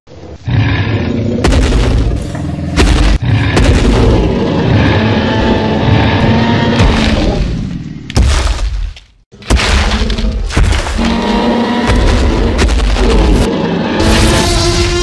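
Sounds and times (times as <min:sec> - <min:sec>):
deep booming dinosaur roar: 0:00.2 - 0:08.0.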